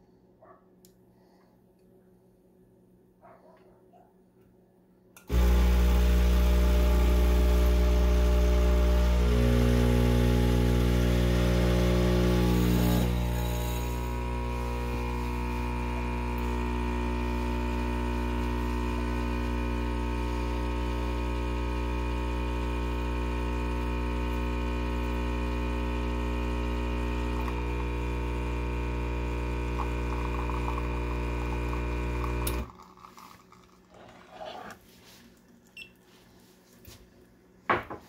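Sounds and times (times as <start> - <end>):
espresso machine pump buzzing: 5.2 - 34.4.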